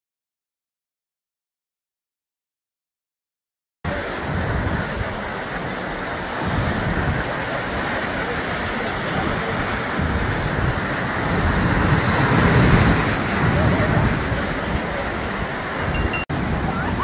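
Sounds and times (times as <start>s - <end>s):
waves breaking over rocks: 3.9s - 17.0s
wind rumbling on microphone: 3.9s - 17.0s.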